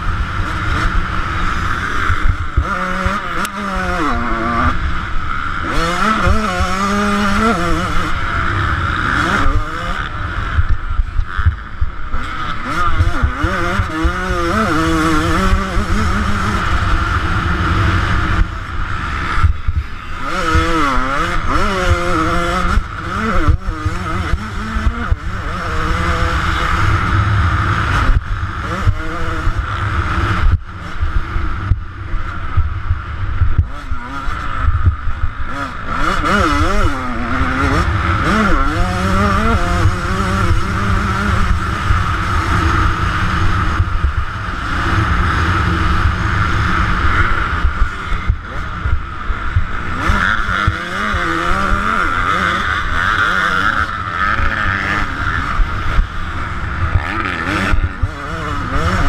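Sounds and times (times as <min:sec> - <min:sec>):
wind rumble on microphone: 0:00.0 - 0:52.9
two-stroke motorcycle engine revving: 0:00.0 - 0:59.0.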